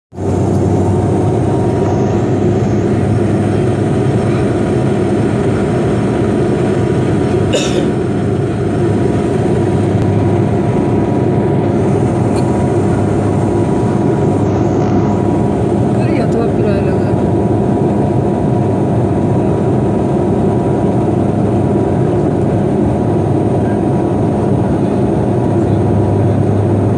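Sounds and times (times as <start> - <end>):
turboprop engines droning: 0.1 - 26.9.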